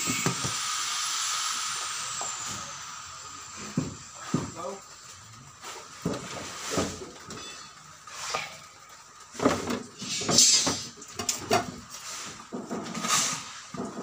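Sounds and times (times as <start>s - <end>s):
short scrape: 8.1s - 8.6s, 13.0s - 13.7s.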